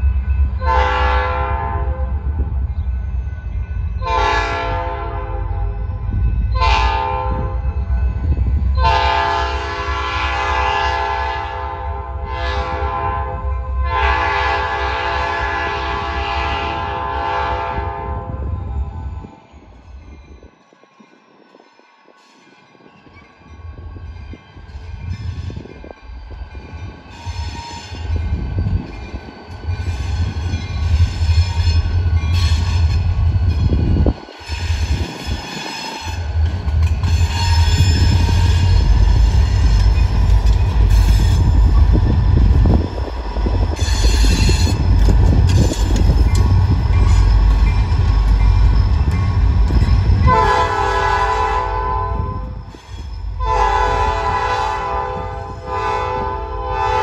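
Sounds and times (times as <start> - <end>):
locomotive engine rumble: 23.8 - 55.8.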